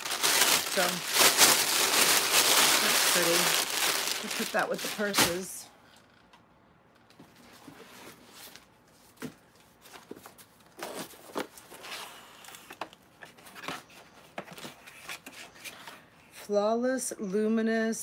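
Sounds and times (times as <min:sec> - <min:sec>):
packaging rustling: 0:00.0 - 0:05.5.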